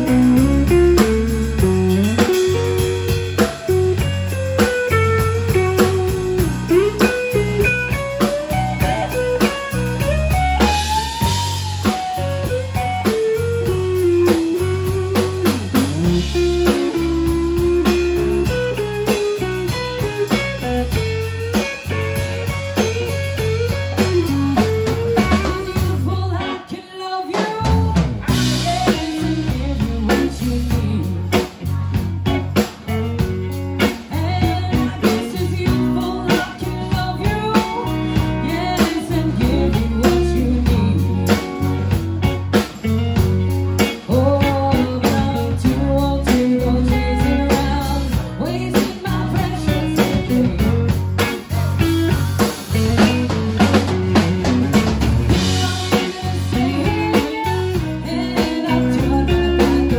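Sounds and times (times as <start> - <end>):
blues-rock band playing: 0.0 - 59.9.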